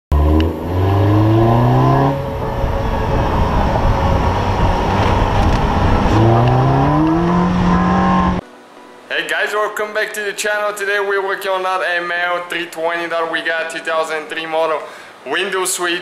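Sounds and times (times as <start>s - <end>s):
car engine accelerating: 0.1s - 8.4s
tyre and wind noise: 0.3s - 8.4s.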